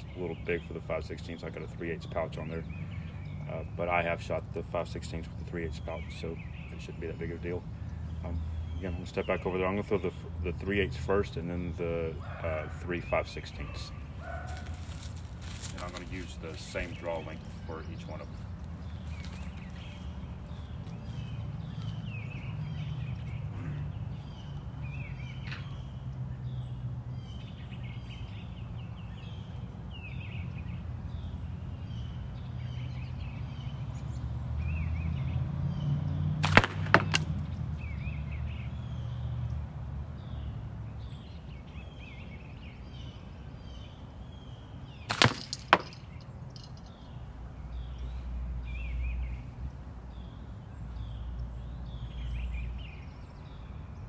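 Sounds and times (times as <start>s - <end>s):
birds chirping faintly: 0.0s - 54.0s
slingshot shot cracks: 36.4s - 37.4s, 45.1s - 46.0s.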